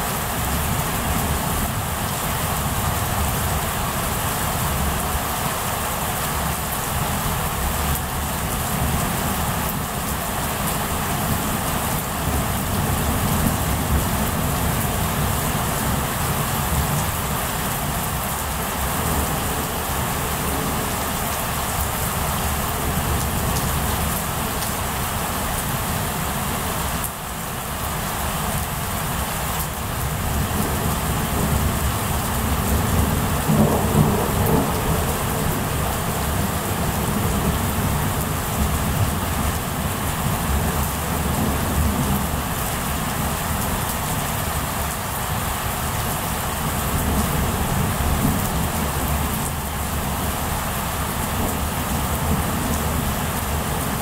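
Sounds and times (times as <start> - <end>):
heavy rain: 0.0 - 54.0
thunder rumbling: 30.3 - 39.6.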